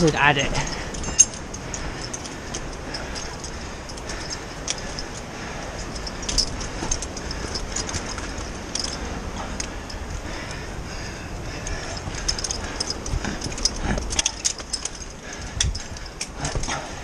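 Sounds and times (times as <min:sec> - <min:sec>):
footsteps on loose stones: 0:00.0 - 0:05.2.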